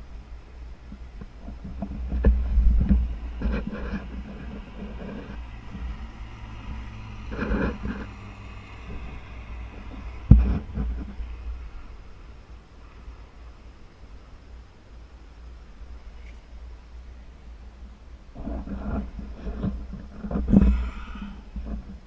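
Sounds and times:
wind buffeting microphone: 0.7 - 13.7
gear and straps rustling: 1.0 - 13.7.

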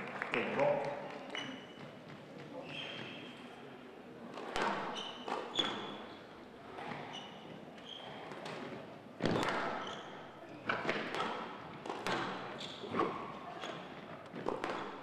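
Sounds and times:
shoes squeaking on court floor: 1.1 - 3.7, 4.4 - 8.8, 9.7 - 10.8, 12.1 - 15.0.

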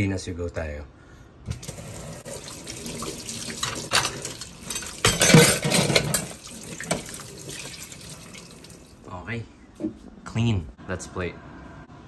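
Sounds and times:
water splashing off utensils: 1.5 - 9.0
utensils clattering against dishes: 3.5 - 7.1.

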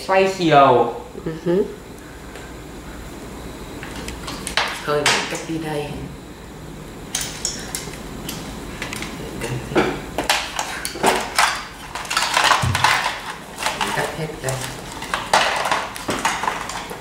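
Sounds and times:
plastic parts clattering in box: 10.6 - 17.0.

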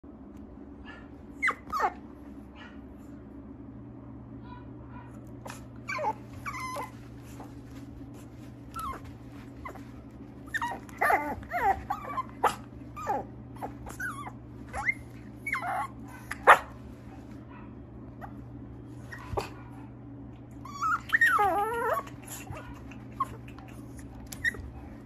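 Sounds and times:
low hum: 0.1 - 25.0
puppy whining and yipping: 0.9 - 2.7, 5.4 - 7.5, 8.7 - 16.7, 20.5 - 24.8.

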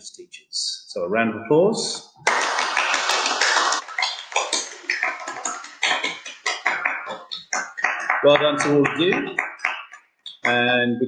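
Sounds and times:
people clapping: 2.2 - 10.7.

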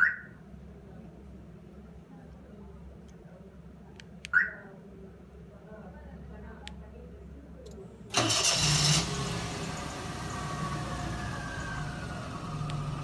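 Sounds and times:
car engine idling: 8.1 - 13.0
car engine starting: 8.1 - 13.0.

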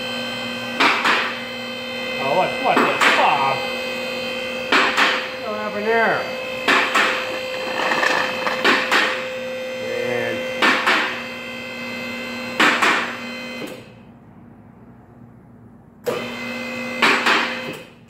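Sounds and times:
electrical hum: 1.5 - 10.6
sharp knocks and clanks: 6.6 - 9.2.

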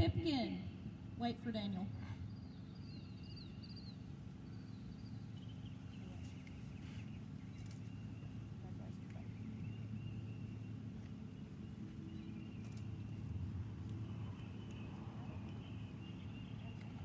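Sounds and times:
steady low rumble: 0.0 - 17.0
faint bird calls: 1.6 - 13.2.

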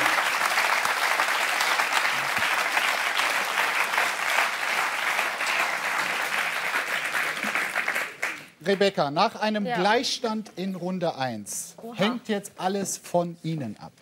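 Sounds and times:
audience applauding: 0.0 - 8.9.

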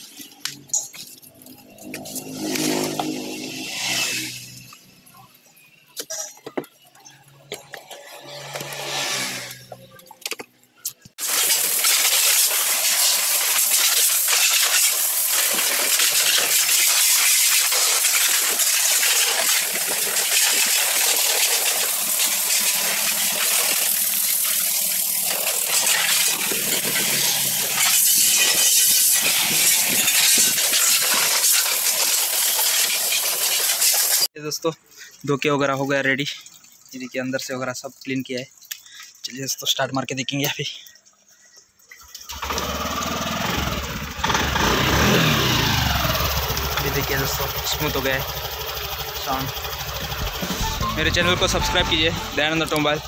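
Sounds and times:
high-pressure water jet spraying: 1.4 - 5.1, 8.2 - 9.8, 11.2 - 34.3, 42.3 - 50.7.

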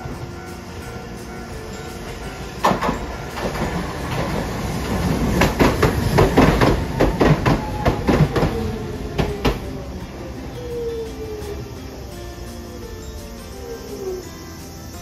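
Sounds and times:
tram wheels clacking over rail joints: 0.0 - 15.0
tram whine: 0.0 - 15.0.

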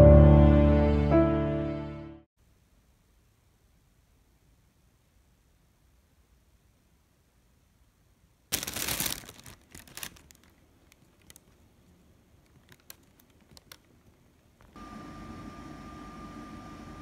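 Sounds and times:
plastic bag crinkling: 8.5 - 14.8
sterilizer cabinet humming: 10.7 - 17.0.

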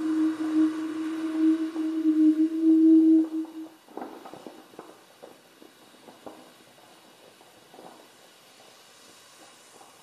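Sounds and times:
steady held tone: 0.0 - 3.8.

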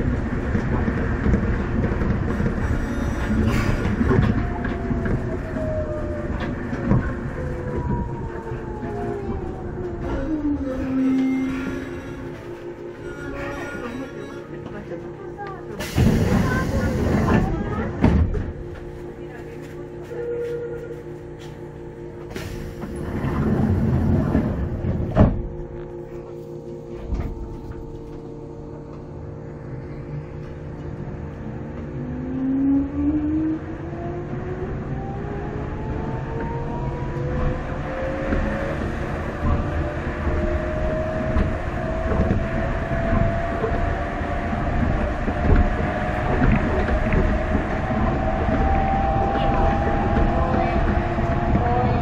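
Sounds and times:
onboard equipment humming: 0.0 - 52.0
train running gear rumble: 0.0 - 52.0
rising whine: 3.2 - 52.0
noisy rush: 21.0 - 52.0.

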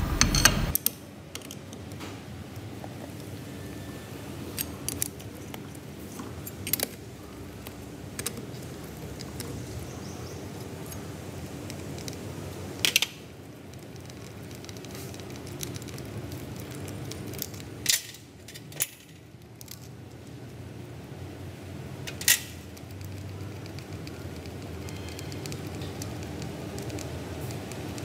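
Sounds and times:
steady low hum: 0.0 - 0.8.

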